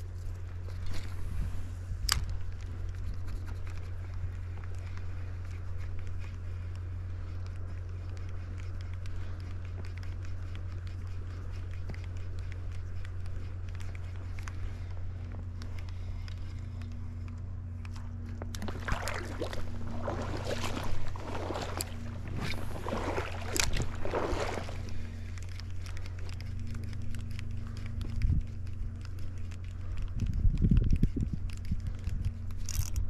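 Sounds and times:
water sloshing and splashing: 0:17.8 - 0:29.9
river water running: 0:18.5 - 0:26.4.

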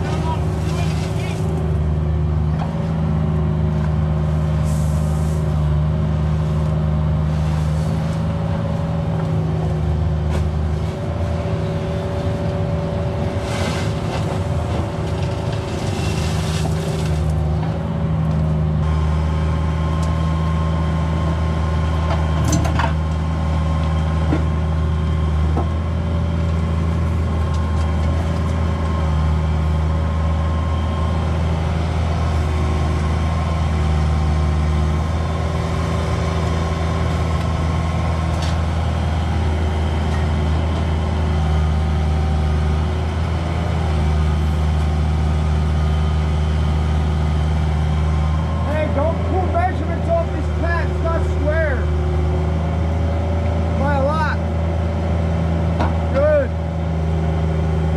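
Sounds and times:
excavator diesel engine: 0:00.0 - 0:57.9
hiss and scraping: 0:04.6 - 0:05.6, 0:13.4 - 0:14.3, 0:15.6 - 0:17.3.

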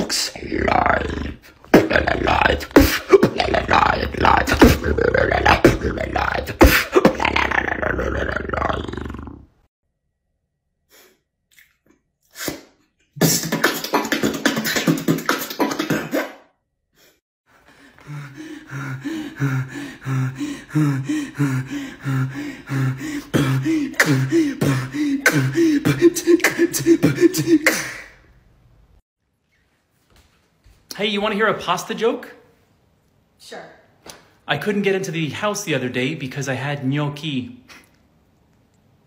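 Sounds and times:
man beatboxing: 0:00.0 - 0:08.8, 0:13.2 - 0:16.4, 0:22.1 - 0:28.1.

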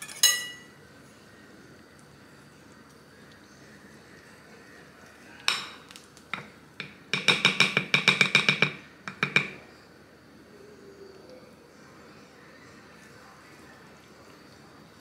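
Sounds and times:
wire whisk clinking on glass bowl: 0:00.0 - 0:00.7.

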